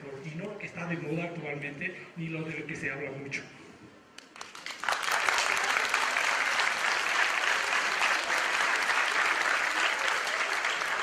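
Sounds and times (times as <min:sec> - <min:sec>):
audience applauding: 0:04.2 - 0:11.0.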